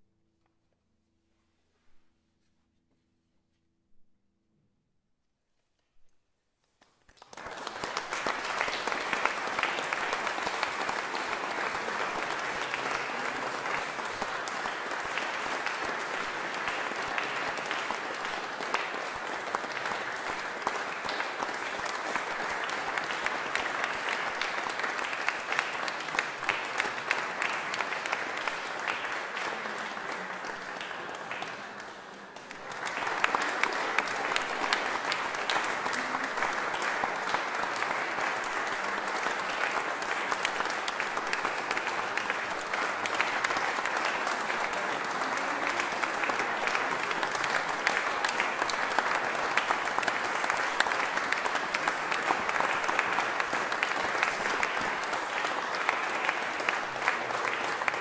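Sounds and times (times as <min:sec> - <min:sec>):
audience applauding: 0:06.8 - 0:58.0.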